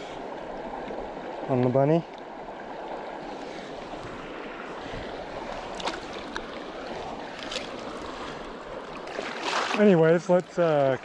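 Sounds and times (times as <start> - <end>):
river current rushing: 0.0 - 11.0
small sharp splashes: 5.7 - 6.5, 9.0 - 11.0.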